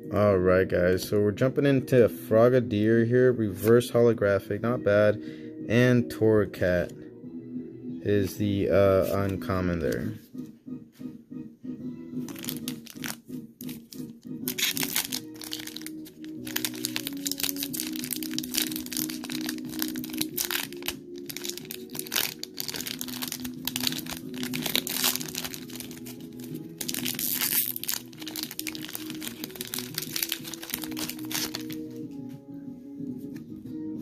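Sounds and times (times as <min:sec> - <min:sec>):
background music with held notes: 0:00.0 - 0:34.0
foil wrapper crinkling: 0:12.3 - 0:31.8.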